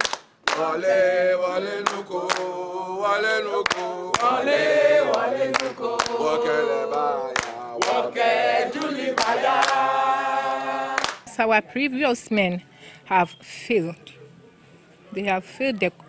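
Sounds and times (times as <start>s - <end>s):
hand claps: 0.0s - 0.8s, 1.8s - 2.5s, 3.6s - 4.4s, 5.0s - 6.3s, 6.9s - 8.1s, 8.7s - 9.8s, 10.9s - 11.3s
group of voices chanting: 0.5s - 11.2s.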